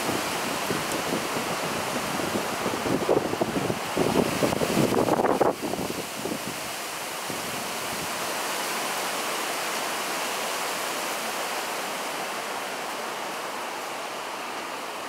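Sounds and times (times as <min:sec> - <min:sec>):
strong wind through tree leaves: 0:00.0 - 0:15.0.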